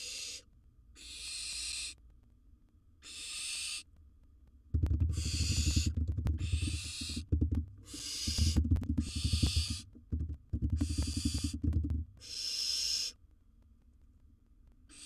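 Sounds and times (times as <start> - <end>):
owl rasping hisses: 0.0 - 2.0, 3.0 - 3.9, 5.1 - 7.2, 7.8 - 9.8, 10.8 - 11.6, 12.2 - 13.2.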